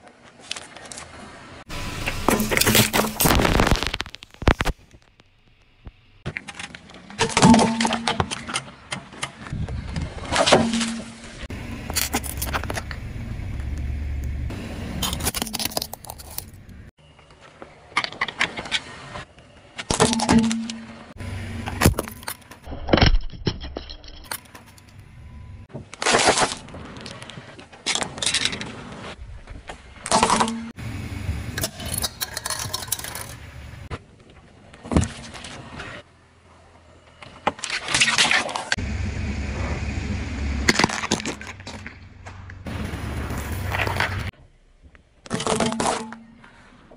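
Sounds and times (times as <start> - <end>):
tyres crushing plastic: 2.1 - 5.3, 15.0 - 16.9, 40.7 - 42.0, 45.2 - 46.6
objects crinkling and cracking: 2.3 - 7.2, 15.0 - 18.7
low vehicle rumble: 9.5 - 17.0, 21.1 - 22.7, 30.7 - 33.9, 38.8 - 45.2.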